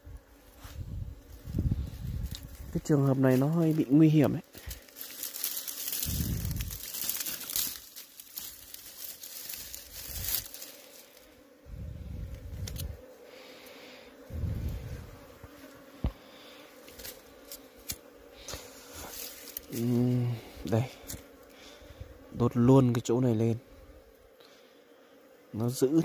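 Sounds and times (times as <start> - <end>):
bees buzzing: 0.0 - 26.0
dry grass rustling: 0.4 - 13.4, 14.3 - 22.3.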